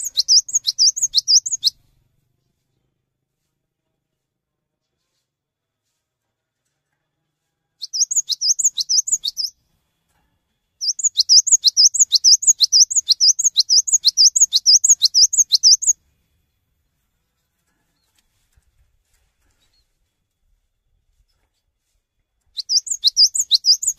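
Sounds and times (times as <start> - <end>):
bird singing rapid high notes: 0.0 - 1.8, 7.8 - 9.5, 10.8 - 16.0, 22.6 - 23.9.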